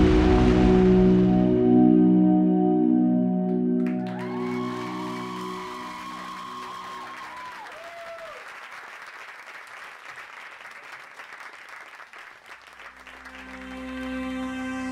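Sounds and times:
audience applauding: 0:03.8 - 0:14.9.

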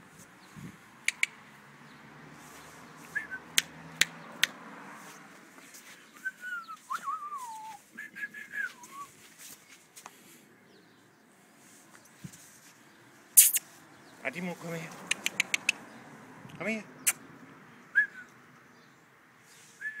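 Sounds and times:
sharp clicks: 0:01.0 - 0:01.4, 0:13.4 - 0:13.6, 0:15.0 - 0:15.8
person whistling wavering notes: 0:06.2 - 0:09.1.

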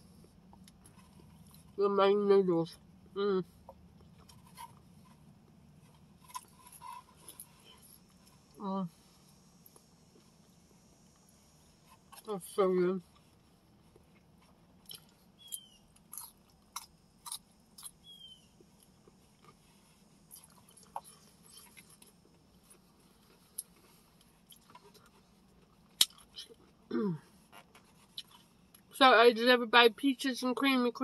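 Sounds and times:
person chewing food: 0:03.6 - 0:08.6, 0:13.1 - 0:28.9.

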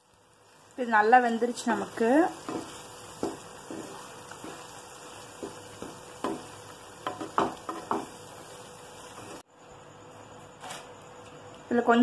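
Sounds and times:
faint sizzle: 0:00.0 - 0:12.0
wooden spatula scraping pan: 0:02.3 - 0:08.2.

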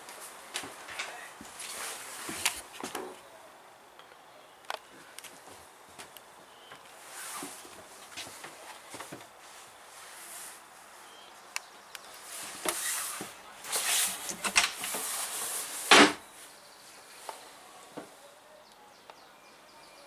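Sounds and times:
door handling clicks and rustles: 0:14.3 - 0:15.1.

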